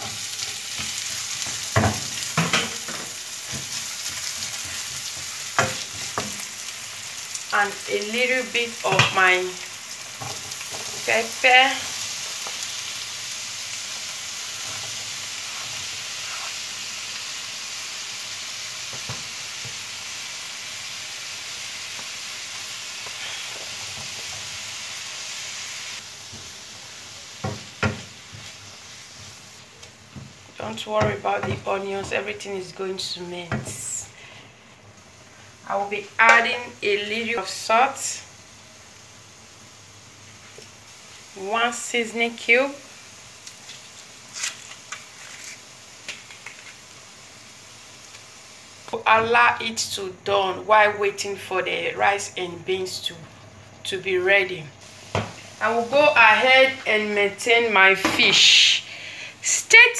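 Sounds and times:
spoon knocking and scraping pan: 0.0 - 6.5, 27.4 - 32.3, 55.1 - 55.4
onions sizzling in a frying pan: 0.0 - 59.9.

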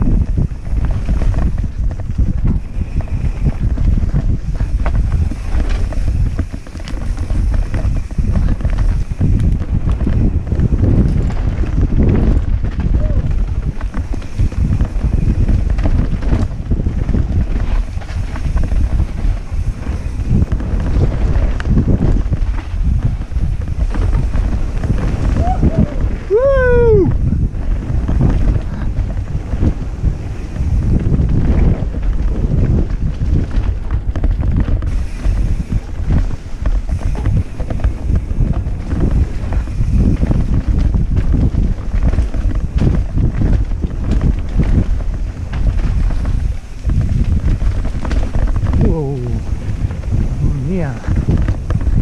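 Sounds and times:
bike knocks and rattles: 0.0 - 52.0
heavy low rumble: 0.0 - 52.0
wind buffeting microphone: 0.0 - 52.0.

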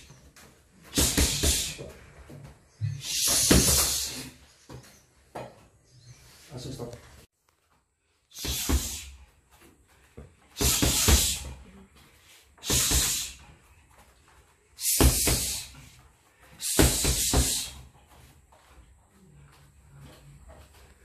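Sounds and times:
sharp hissing exhalations: 0.9 - 1.9, 2.9 - 4.5, 8.3 - 9.3, 10.6 - 11.6, 12.2 - 13.6, 14.8 - 17.9
bare feet thudding on mat: 8.4 - 18.9.

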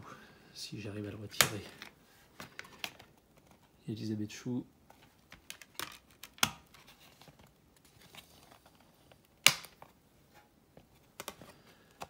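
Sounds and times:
plastic disc case handling: 1.4 - 3.8, 4.9 - 10.0, 10.8 - 12.0
sharp plastic snap: 9.4 - 9.8.

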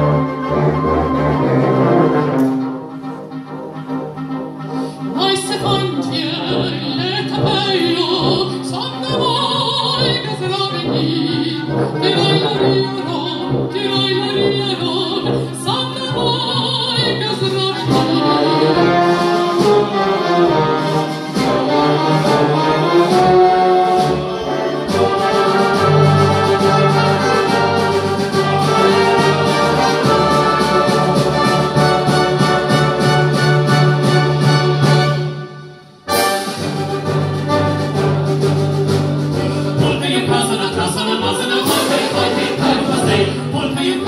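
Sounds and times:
wind band playing: 0.0 - 44.0.

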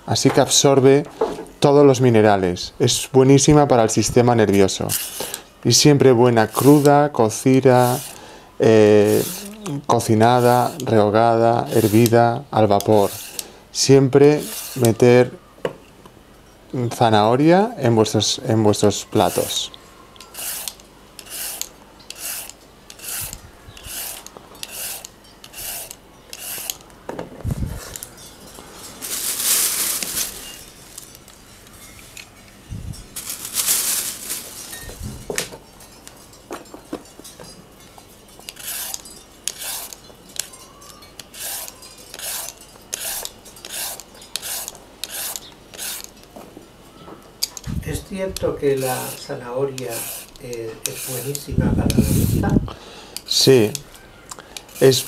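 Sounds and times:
vegetable peeler scraping carrots: 4.8 - 5.4, 6.3 - 8.2, 8.8 - 13.5, 14.3 - 15.0, 19.0 - 26.8, 38.4 - 46.2, 47.4 - 52.6, 54.6 - 55.0.

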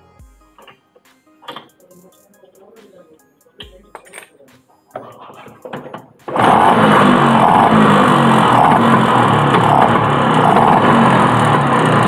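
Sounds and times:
scooter engine running: 6.3 - 12.0.

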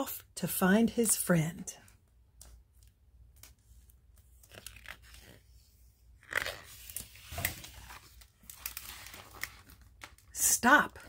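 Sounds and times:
book page rustling and crackling: 2.4 - 10.4.

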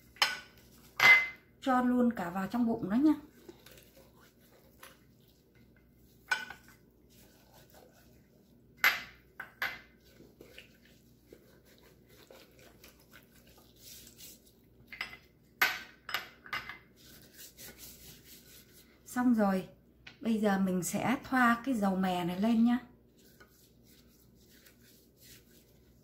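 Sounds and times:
glass bowl clink: 0.2 - 1.4
clinks against ceramic dish: 1.0 - 1.4
hands rubbing chicken: 3.2 - 8.7, 10.0 - 14.7, 16.9 - 18.9, 23.1 - 26.0.

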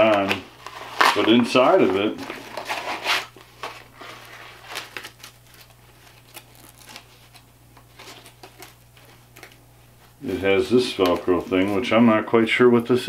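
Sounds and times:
velcro scratching: 2.5 - 9.6.

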